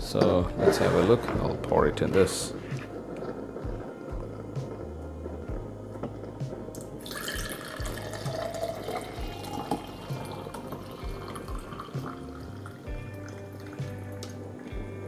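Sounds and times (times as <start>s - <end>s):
water pouring into a glass: 6.8s - 14.4s.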